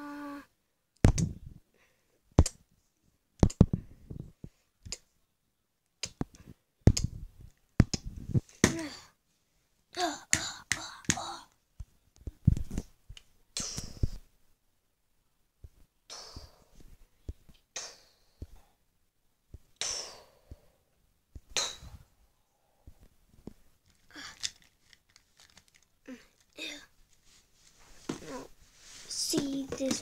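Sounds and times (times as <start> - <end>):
plastic figures knocking and clattering: 29.3 - 30.0.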